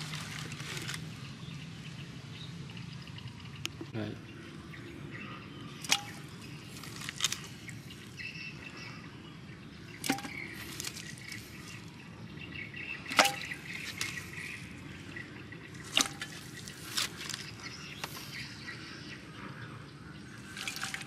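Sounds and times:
items knocking in clay pot: 5.8 - 7.4, 10.0 - 11.4, 13.0 - 14.5, 15.7 - 18.3, 20.5 - 21.0.

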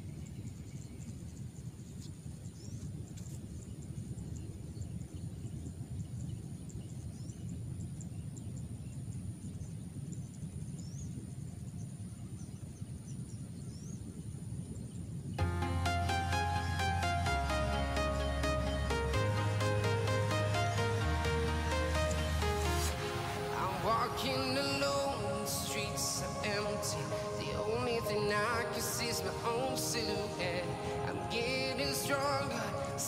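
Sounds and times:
low rumble: 15.4 - 29.7
high steady whine: 15.4 - 33.0
rising bird chirps: 15.4 - 33.0.

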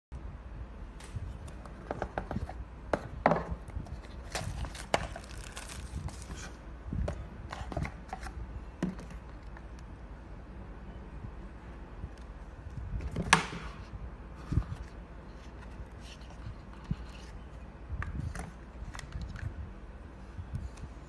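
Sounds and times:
packaging rustling: 4.0 - 6.6.

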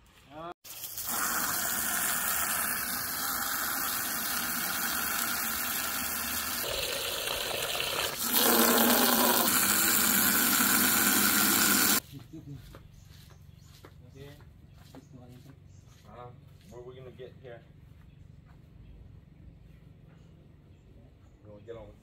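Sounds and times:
water filling a bucket: 0.6 - 12.0
hose nozzle spraying water: 0.7 - 12.0.

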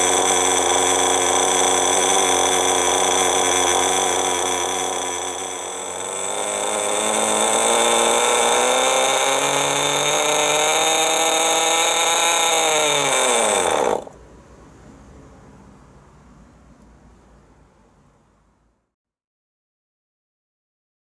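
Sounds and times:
model engine high buzz: 0.0 - 14.2.

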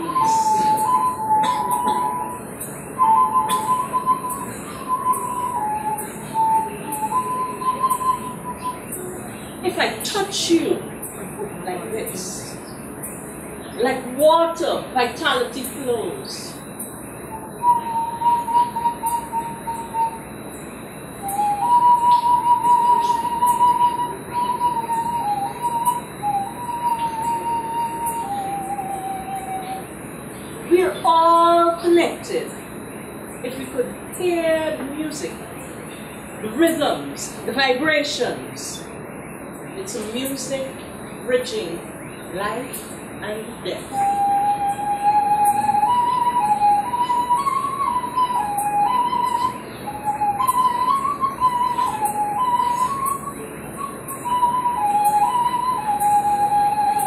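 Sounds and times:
flute playing long held notes: 0.0 - 10.6, 17.2 - 32.0, 43.8 - 57.0
faint high pulsing hiss: 0.0 - 57.0.

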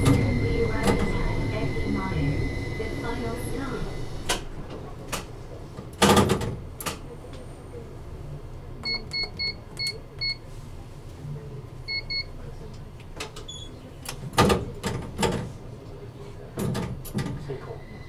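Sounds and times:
low steady hum: 0.0 - 5.1.

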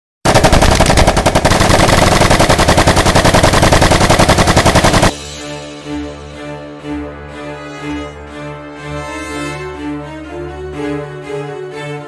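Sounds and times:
machine-gun fire: 0.2 - 5.2
soft orchestral music: 5.1 - 12.0.

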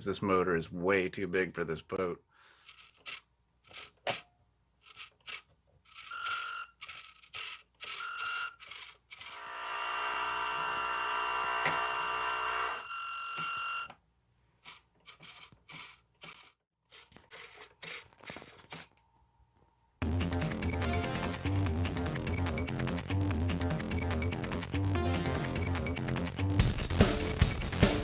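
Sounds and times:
electric motor whine: 9.2 - 13.8.

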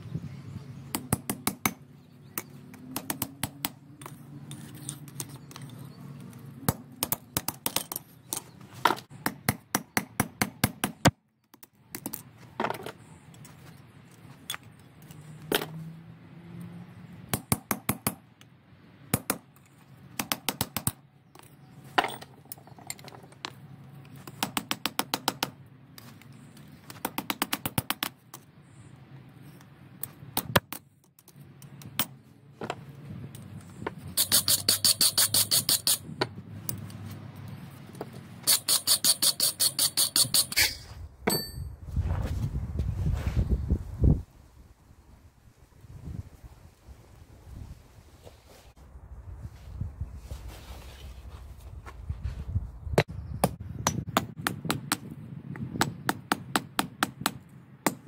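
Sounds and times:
hammer striking steel on anvil: 39.0 - 41.7.

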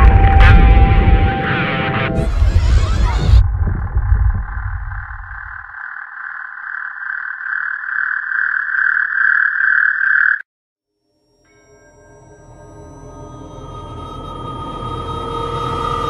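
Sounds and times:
pulsing mid-pitched drone: 0.0 - 3.7, 11.5 - 16.0
low throb: 0.0 - 5.6.

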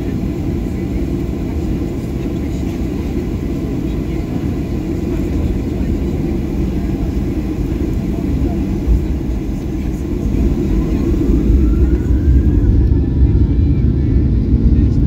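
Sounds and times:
jet engines rumbling: 0.0 - 15.0.

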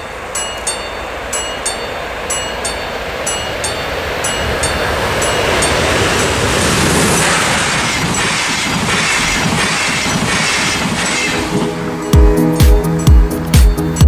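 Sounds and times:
train passing at speed: 0.0 - 14.0
electronic dance music: 8.9 - 14.0.

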